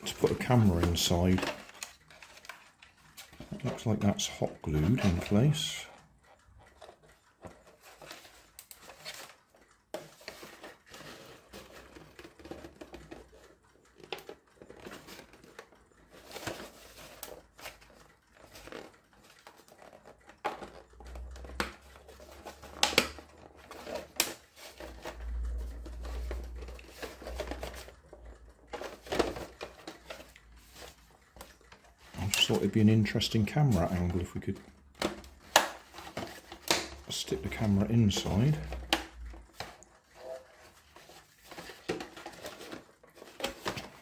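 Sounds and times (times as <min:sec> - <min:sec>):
plastic shell crackling and creaking: 0:00.0 - 0:44.0.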